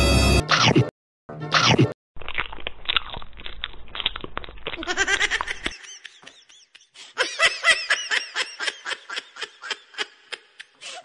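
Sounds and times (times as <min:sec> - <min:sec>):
person laughing: 0:04.8 - 0:11.0.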